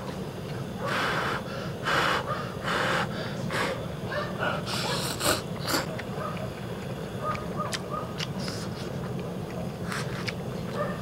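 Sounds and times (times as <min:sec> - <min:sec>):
gas burner flame rumble: 0:00.0 - 0:07.3.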